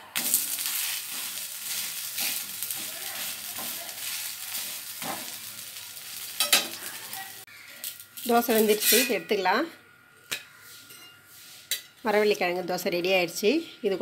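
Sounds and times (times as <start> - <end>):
pancake sizzling in oil: 0.0 - 9.2.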